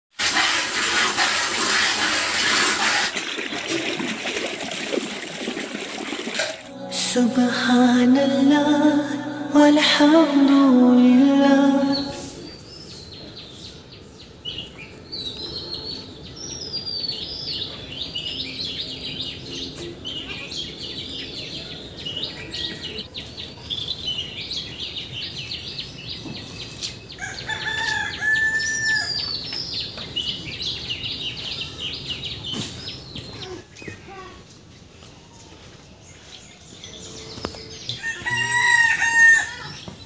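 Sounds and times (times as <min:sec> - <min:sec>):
small birds chirping: 0:11.8 - 0:38.1
rooster crowing: 0:38.0 - 0:39.8.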